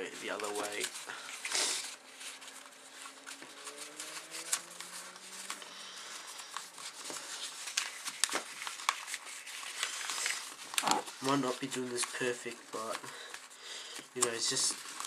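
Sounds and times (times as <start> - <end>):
paper rustling and crinkling: 0.0 - 15.0.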